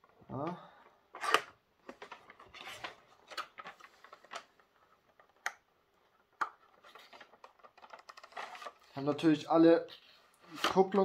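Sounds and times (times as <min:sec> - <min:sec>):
packaging rustling: 0:06.6 - 0:09.1.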